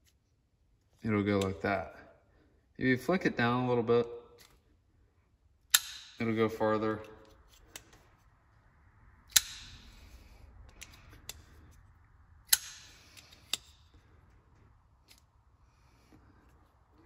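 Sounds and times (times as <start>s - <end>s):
knife blade snapping open: 12.5s - 13.8s.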